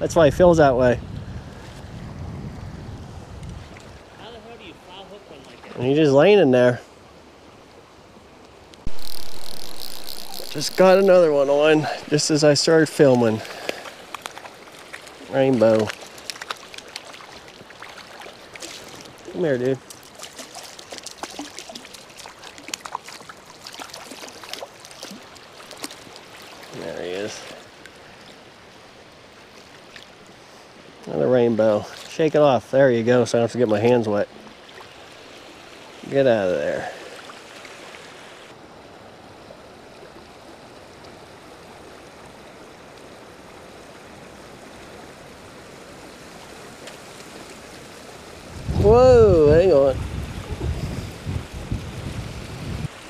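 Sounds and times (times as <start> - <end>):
stream water running: 0.0 - 53.0
small splashes at water surface: 13.4 - 27.6.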